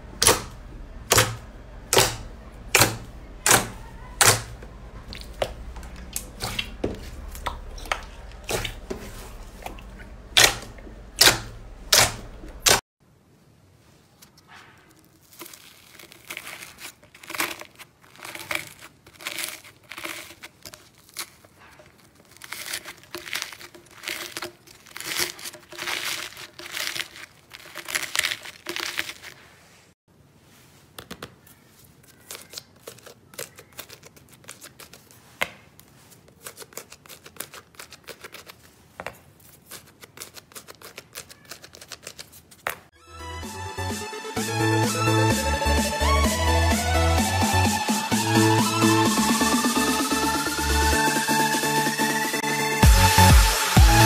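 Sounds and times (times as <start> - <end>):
crunchy crackling of dried slime: 0.0 - 12.8, 14.1 - 30.0, 31.3 - 43.0
slime popping: 0.2 - 12.8, 14.9 - 29.4.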